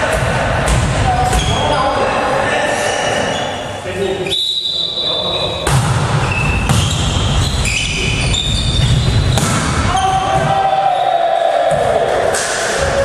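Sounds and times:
volleyball being hit: 0:00.0 - 0:01.4, 0:05.6 - 0:07.3, 0:09.3 - 0:10.6
shoes squeaking on floor: 0:01.2 - 0:02.2, 0:03.1 - 0:05.6, 0:06.2 - 0:10.4.

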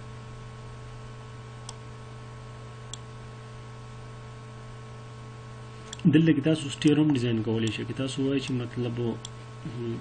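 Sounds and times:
low hum and hiss: 0:00.0 - 0:10.0.

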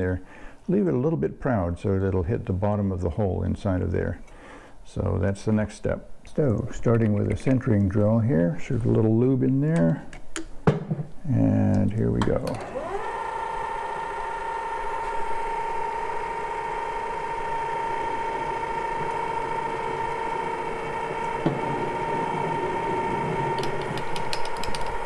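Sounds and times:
lathe whining: 0:12.6 - 0:25.0.

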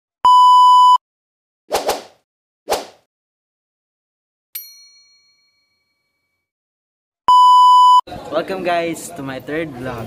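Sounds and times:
test-tone beep: 0:00.2 - 0:01.0, 0:07.3 - 0:08.0.

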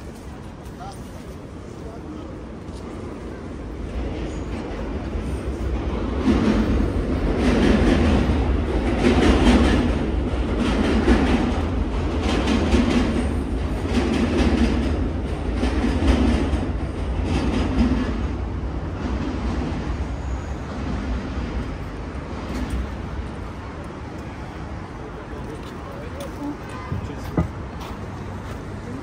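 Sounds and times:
train low rumble: 0:00.0 - 0:29.0
train wheels clacking on rails: 0:02.7 - 0:24.3.

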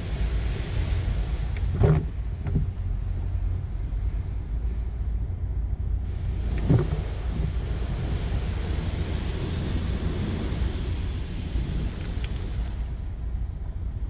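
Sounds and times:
water spray hitting car body: 0:00.0 - 0:03.3, 0:06.0 - 0:14.0
dull knocks: 0:01.7 - 0:02.7, 0:06.6 - 0:07.6.

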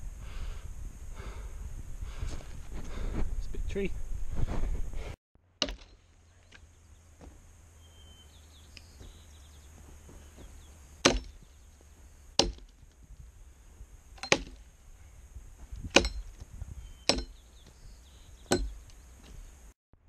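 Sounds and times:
axe chopping into a log: 0:05.6 - 0:06.6, 0:11.0 - 0:11.5, 0:12.4 - 0:12.8, 0:14.2 - 0:14.6, 0:15.8 - 0:16.3, 0:17.1 - 0:17.4, 0:18.5 - 0:18.8.

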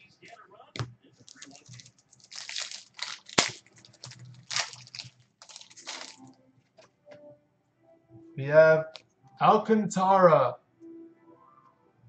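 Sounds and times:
plastic wrapper crinkling and tearing: 0:01.2 - 0:06.3.

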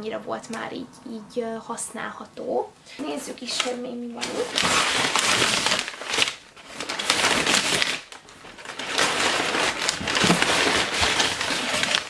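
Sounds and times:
packing paper crackling: 0:03.4 - 0:12.0.

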